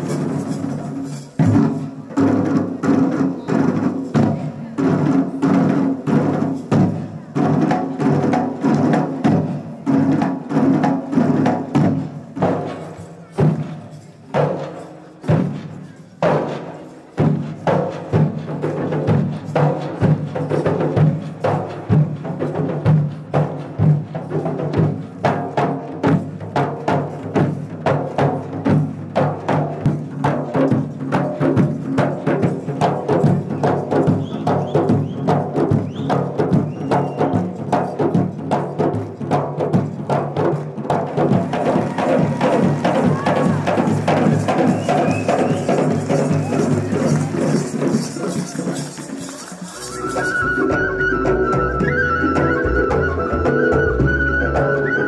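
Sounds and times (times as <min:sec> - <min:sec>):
live band playing: 0:00.0 - 0:02.6, 0:31.6 - 0:55.0
drum beat: 0:00.0 - 0:13.7, 0:14.3 - 0:55.0.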